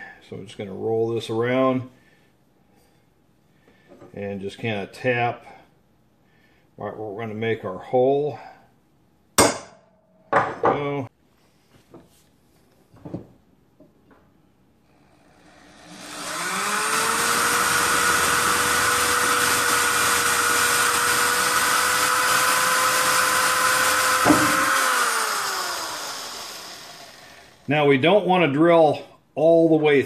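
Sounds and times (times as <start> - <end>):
knock: 10.3 - 10.8, 24.2 - 24.6
electric drill drilling metal: 15.0 - 27.7.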